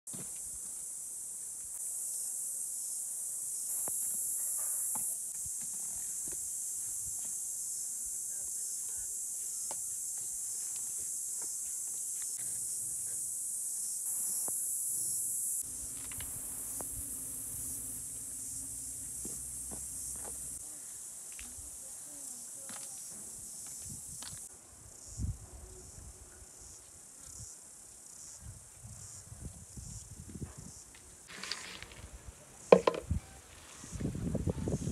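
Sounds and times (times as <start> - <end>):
insects chorus: 0.1 - 34.9
low hum: 15.6 - 19.2.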